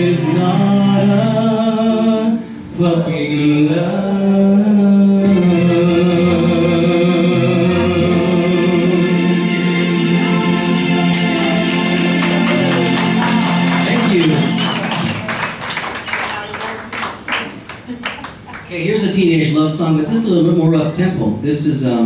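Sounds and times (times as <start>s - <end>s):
man singing: 0.0s - 10.4s
karaoke backing track: 0.0s - 22.0s.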